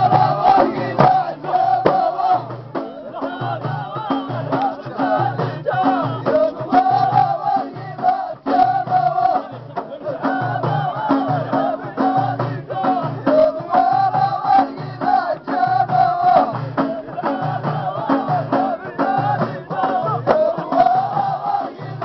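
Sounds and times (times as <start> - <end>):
frame drums beaten: 0.0 - 22.0
men chanting together: 0.0 - 22.0.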